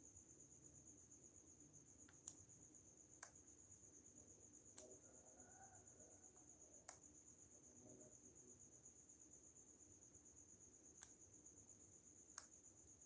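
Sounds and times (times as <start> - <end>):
cricket trilling: 0.0 - 13.0
sharp clicks: 2.0 - 2.5.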